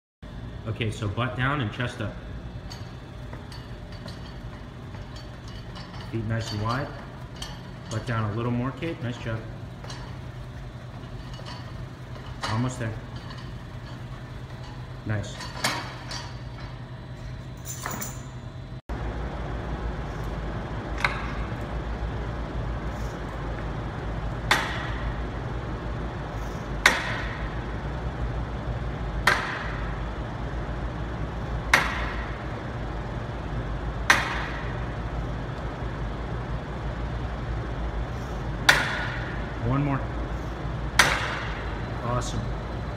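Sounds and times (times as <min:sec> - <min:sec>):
steady low hum: 0:00.2 - 0:42.9
barbell clanking: 0:02.6 - 0:16.8
gym equipment clatter: 0:02.6 - 0:16.8.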